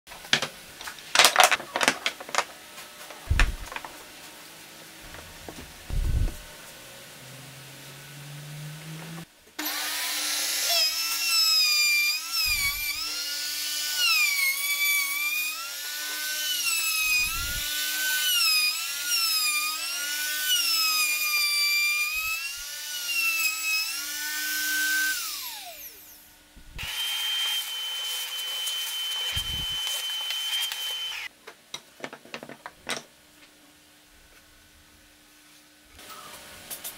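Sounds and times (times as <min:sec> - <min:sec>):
router motor whine: 0:08.1 - 0:31.3.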